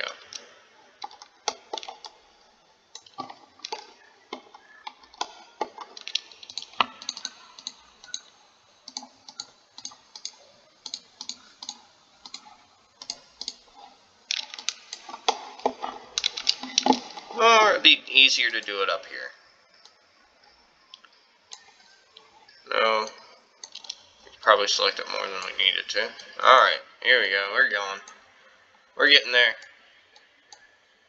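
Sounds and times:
mouse and keyboard clicking: 1.0s - 2.2s, 3.0s - 8.3s, 8.9s - 13.7s, 14.3s - 17.3s, 20.9s - 24.0s.

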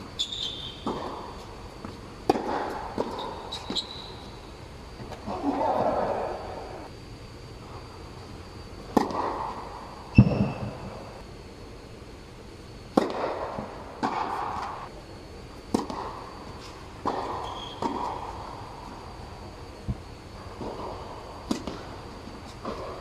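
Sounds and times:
rackets striking tennis ball: 0.1s - 4.3s, 8.9s - 10.9s, 12.9s - 14.9s, 15.7s - 18.5s, 20.6s - 23.0s
tennis ball bouncing: 0.2s - 3.9s, 8.9s - 10.4s, 12.9s - 14.8s, 15.7s - 16.2s, 17.0s - 18.4s, 20.6s - 21.9s.

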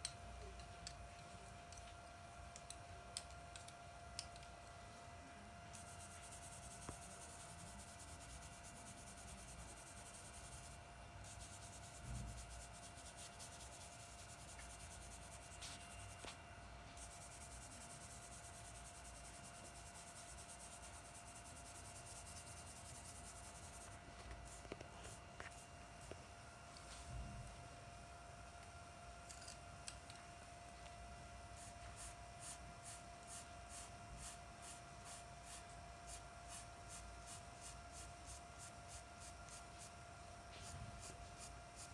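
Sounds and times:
brush stroking paper: 11.3s - 16.4s.

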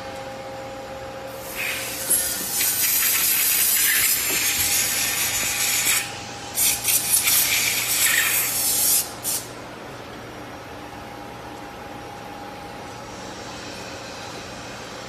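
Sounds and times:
faint constant hum: 0.0s - 15.0s
loud hissing rasping noise: 1.4s - 9.4s.

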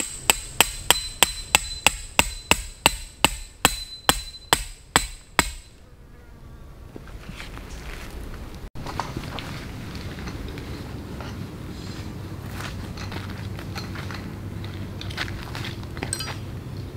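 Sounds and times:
tent stake being hammered: 0.0s - 5.8s.

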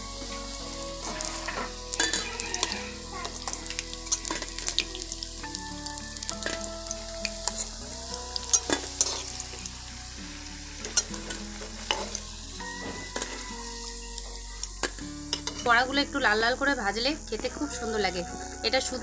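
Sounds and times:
fritters sizzling in oil: 0.0s - 18.1s
metal spatula scraping pan: 1.0s - 4.9s, 8.5s - 9.6s.

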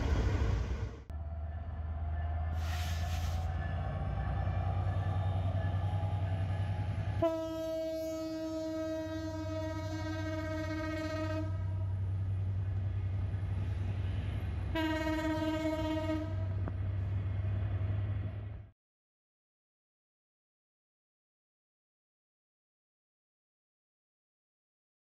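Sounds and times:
low rumble of running train: 0.0s - 18.8s
locomotive horn blast: 2.6s - 11.9s, 14.7s - 16.6s.

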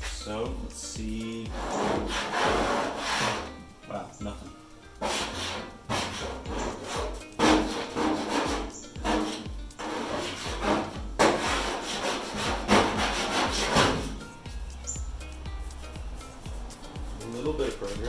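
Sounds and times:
plastic scraper scraping paint: 1.5s - 3.5s, 5.0s - 14.2s.

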